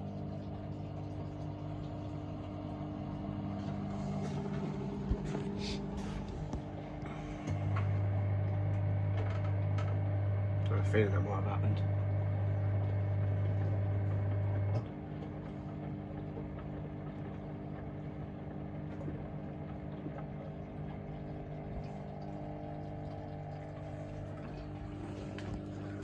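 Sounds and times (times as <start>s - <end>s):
water swishing: 0.0s - 8.4s, 14.9s - 26.0s
washing machine drain pump hum: 0.0s - 26.0s
washing machine drum turning: 0.0s - 26.0s.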